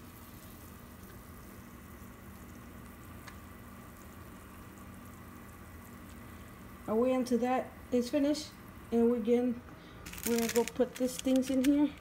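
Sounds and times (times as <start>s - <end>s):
water simmering in pan: 0.0s - 8.9s.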